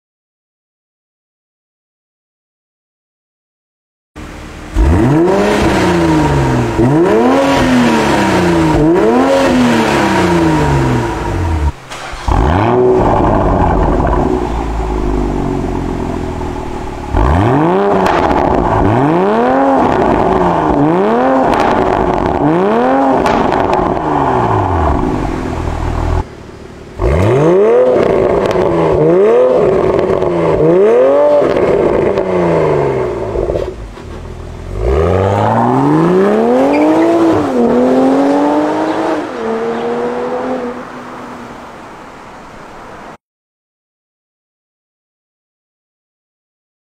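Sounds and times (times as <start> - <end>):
car engine revving in blips: 4.2 - 41.3.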